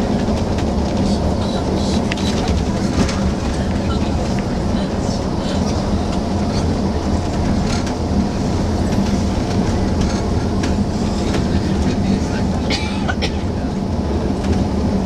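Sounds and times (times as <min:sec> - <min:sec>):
coach engine and road drone: 0:00.0 - 0:15.0.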